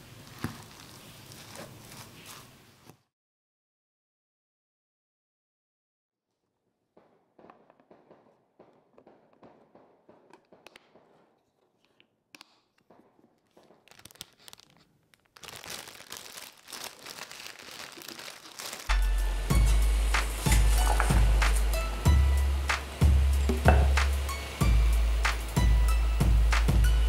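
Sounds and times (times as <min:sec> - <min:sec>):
music: 0:18.9 - 0:27.0.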